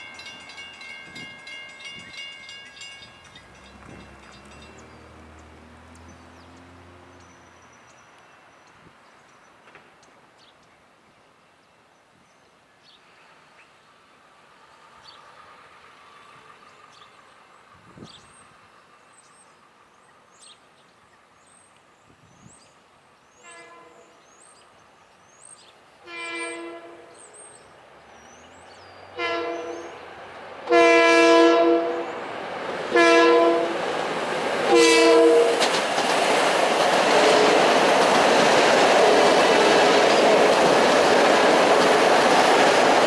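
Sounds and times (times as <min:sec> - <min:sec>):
train passing on rails: 0:00.0 - 0:10.7, 0:13.0 - 0:43.0
train horn blasts: 0:23.4 - 0:24.2, 0:26.0 - 0:27.2, 0:29.1 - 0:30.0, 0:30.7 - 0:32.2, 0:32.9 - 0:33.8, 0:34.7 - 0:35.7, 0:37.1 - 0:37.8.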